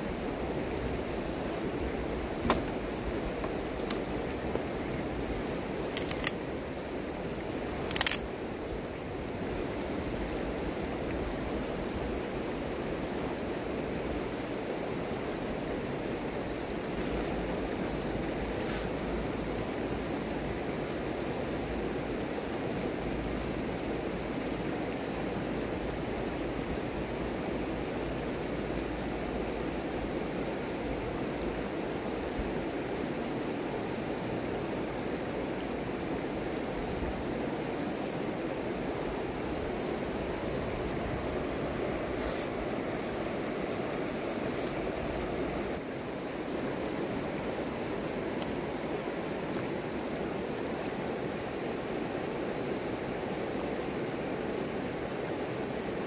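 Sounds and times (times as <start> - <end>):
river flowing over stones: 0.0 - 56.0
dry sticks snapping: 5.9 - 6.4, 7.7 - 8.2.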